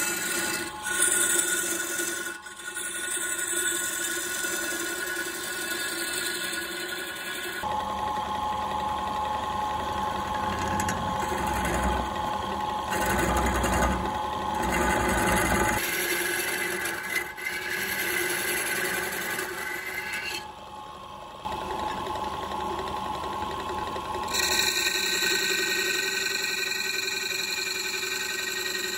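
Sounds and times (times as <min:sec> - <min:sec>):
turning tool rasping on wood: 0:00.0 - 0:07.7, 0:10.4 - 0:20.5, 0:24.3 - 0:28.9
wood lathe whirring: 0:00.0 - 0:28.9.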